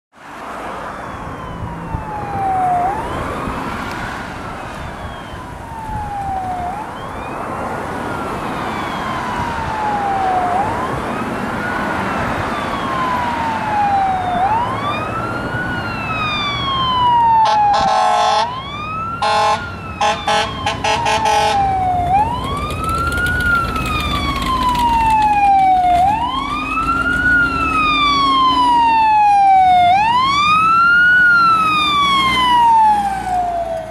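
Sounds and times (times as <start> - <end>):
fire engine siren wailing: 0.4 - 33.9
air horn blasts: 17.4 - 18.5, 19.2 - 21.7.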